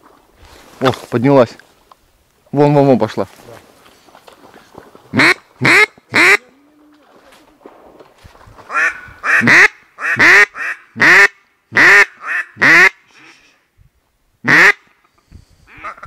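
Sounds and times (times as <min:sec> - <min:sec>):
duck quacking: 0:05.1 - 0:06.5, 0:08.7 - 0:13.4, 0:14.4 - 0:14.9, 0:15.7 - 0:16.0.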